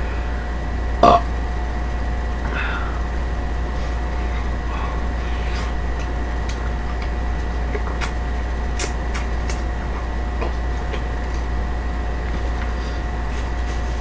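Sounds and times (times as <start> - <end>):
faint constant whine: 0.0 - 14.0
steady low hum: 0.0 - 14.0
sharp mouth clicks: 7.7 - 9.6.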